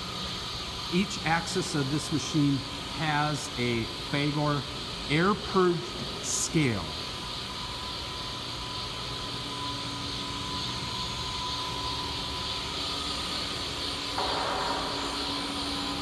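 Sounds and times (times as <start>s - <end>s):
grinding machine hum and hiss: 0.0s - 16.0s
thin steady whine: 0.0s - 16.0s
loud hiss: 13.8s - 16.0s.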